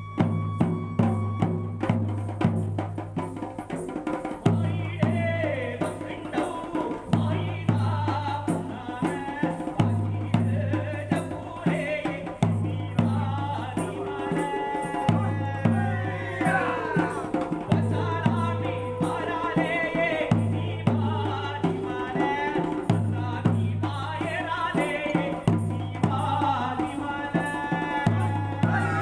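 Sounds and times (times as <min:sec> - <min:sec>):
hand-beaten drums: 0:00.0 - 0:29.0
people singing folk song: 0:04.5 - 0:29.0.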